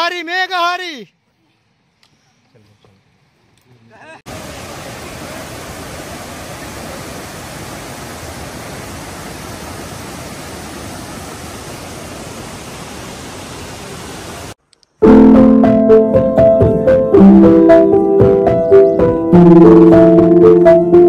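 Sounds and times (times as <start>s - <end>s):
stream rushing over rocks: 4.3s - 14.6s.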